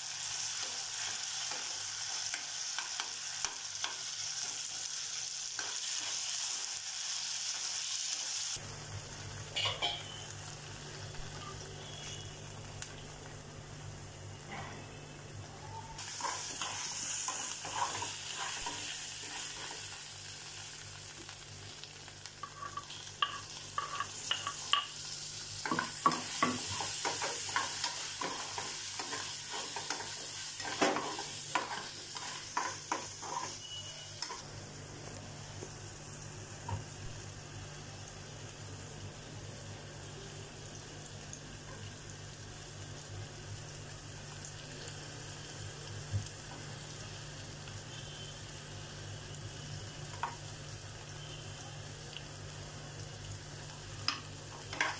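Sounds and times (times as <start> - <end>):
onions sizzling in a frying pan: 0.0 - 54.9
spoon scraping and knocking a pan: 22.4 - 24.9.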